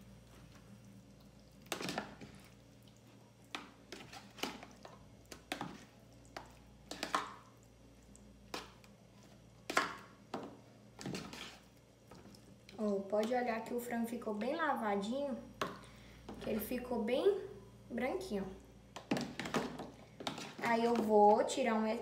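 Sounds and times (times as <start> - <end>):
spoon stirring wet chicken: 0.2 - 13.8, 18.9 - 21.6.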